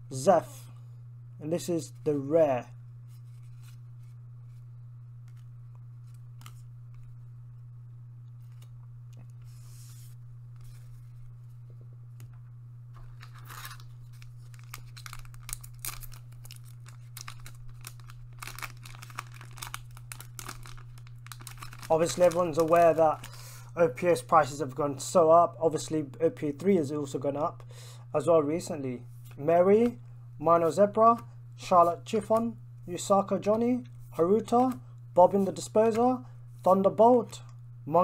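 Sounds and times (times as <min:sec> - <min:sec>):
steady low hum: 0:00.0 - 0:38.0
cards being handled: 0:03.1 - 0:07.2, 0:08.3 - 0:12.3, 0:13.0 - 0:23.4, 0:34.0 - 0:37.4
foil wrapper crinkling and tearing: 0:13.1 - 0:23.6.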